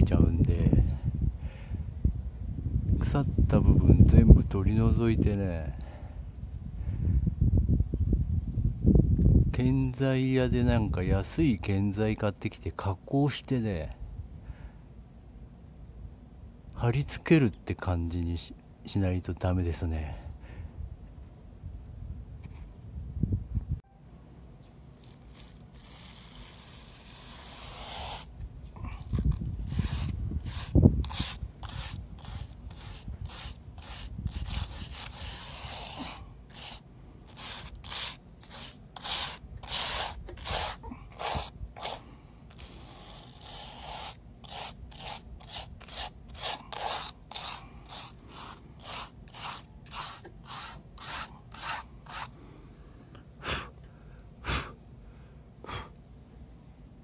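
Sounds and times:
wire brush scraping wood: 25.0s - 52.3s.

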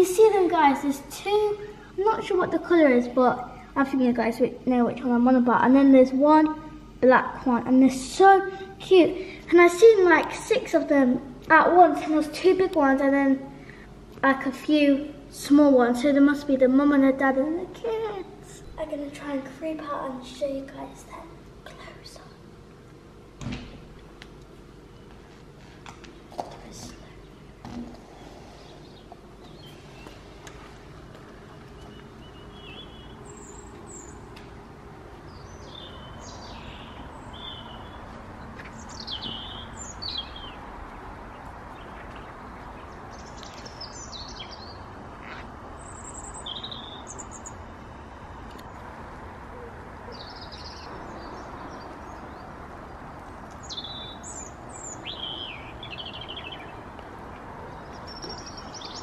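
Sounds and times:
low outdoor background noise: 0.0s - 59.0s
birds chirping and trilling: 26.1s - 30.3s, 31.4s - 47.8s, 49.5s - 59.0s.

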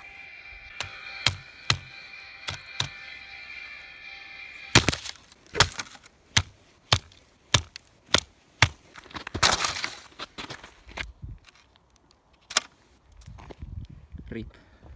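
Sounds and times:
music from speaker: 0.0s - 4.8s.

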